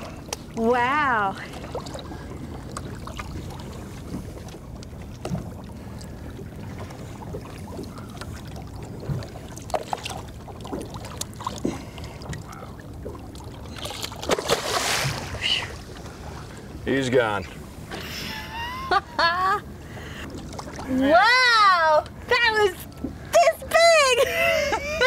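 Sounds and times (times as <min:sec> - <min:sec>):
water lapping against boat hull: 0:00.0 - 0:25.0
short splashes and knocks: 0:01.4 - 0:16.6.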